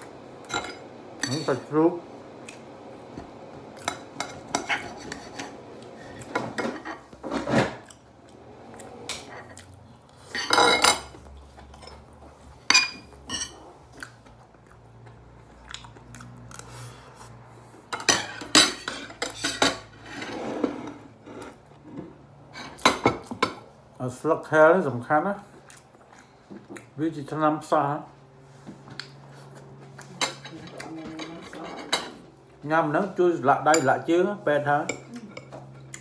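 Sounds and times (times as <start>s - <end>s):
cutlery clinking and scraping on plate: 3.8s - 8.0s, 10.3s - 13.7s, 17.9s - 21.6s.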